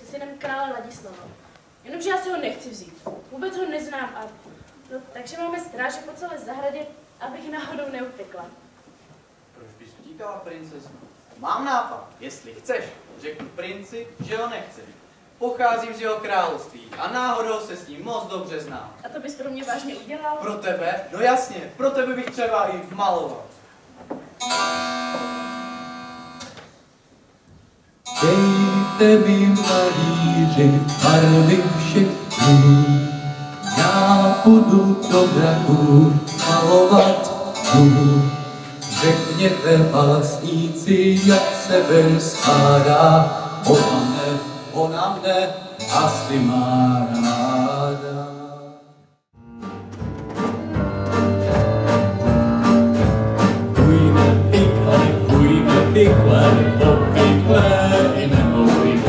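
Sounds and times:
instrumental accompaniment: 24.4 - 26.7, 28.0 - 59.0
rhythmic music: 28.1 - 48.2, 49.4 - 59.0
young man singing slow song: 28.1 - 48.8, 53.8 - 59.0.

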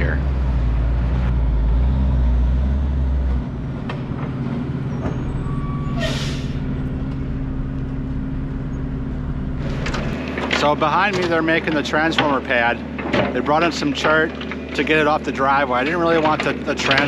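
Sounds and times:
diesel truck engine running: 0.0 - 17.0
air brakes hissing: 5.0 - 6.8.

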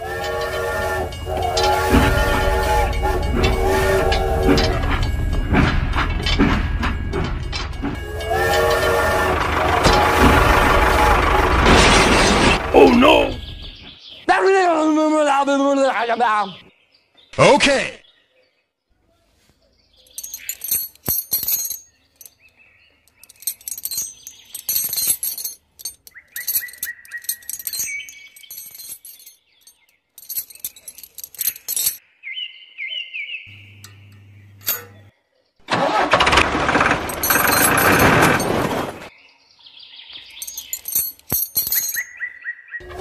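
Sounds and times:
metal chain clinking: 0.2 - 8.9, 20.0 - 32.0, 33.8 - 35.1, 36.8 - 38.8, 40.3 - 42.2.

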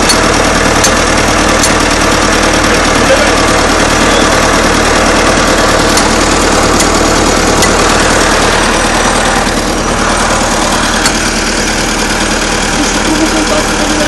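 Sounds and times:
hammer tapping on track: 0.0 - 2.0, 5.3 - 8.7, 11.0 - 11.3
tracked vehicle engine idling: 0.0 - 14.0.

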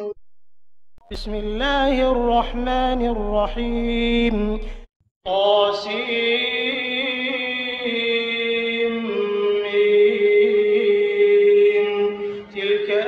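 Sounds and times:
man chanting recitation: 1.1 - 13.0.

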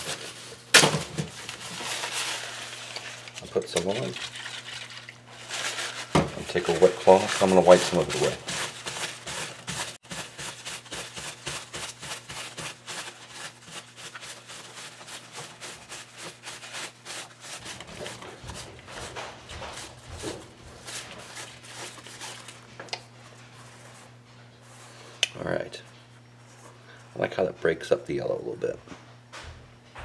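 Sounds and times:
wet cloth wiping foam: 6.5 - 22.6.

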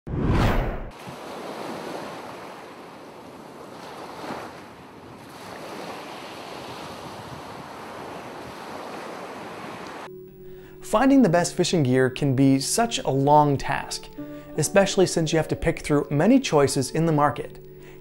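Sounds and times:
ocean surf washing: 0.6 - 10.1.

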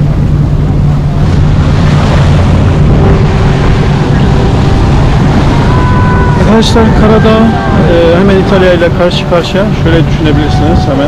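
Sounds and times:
boat engine humming: 0.0 - 11.0
wind on microphone: 0.0 - 11.0.

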